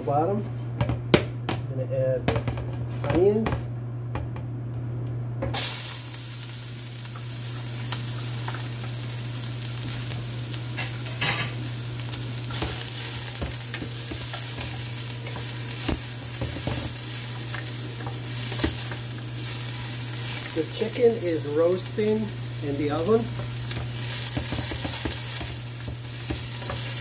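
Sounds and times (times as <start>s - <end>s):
onions sizzling in hot oil: 5.6s - 27.0s.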